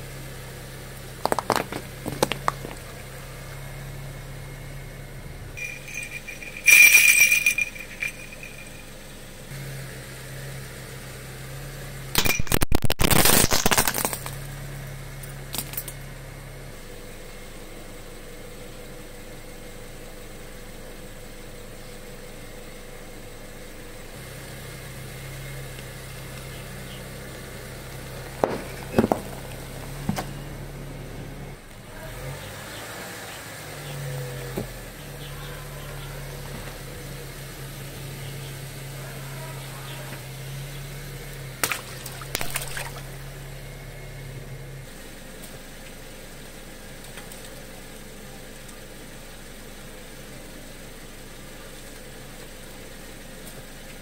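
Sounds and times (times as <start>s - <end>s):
car engine idling: 0.0s - 12.7s, 13.3s - 54.0s
hard plastic shattering: 1.2s - 2.9s, 12.2s - 14.5s
tyre crushing objects: 1.2s - 3.0s, 12.6s - 14.4s
sharp cracks: 12.2s - 14.6s, 41.6s - 43.1s.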